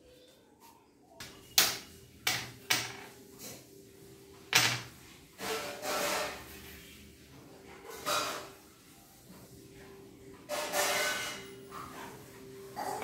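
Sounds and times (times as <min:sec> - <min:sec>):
carrom coins clacking on board: 0:01.2 - 0:03.2, 0:04.5 - 0:04.9.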